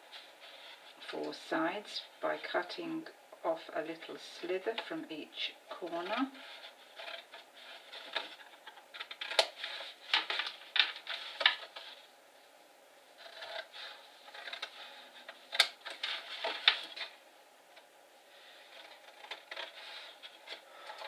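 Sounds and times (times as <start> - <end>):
paper rustling: 5.8 - 12.1, 13.2 - 17.2, 18.4 - 21.0.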